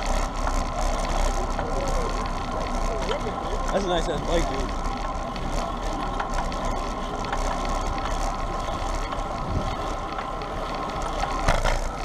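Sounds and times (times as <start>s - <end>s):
bicycle tyre and drivetrain hum: 0.0s - 12.0s
wind rushing over microphone: 9.2s - 9.9s.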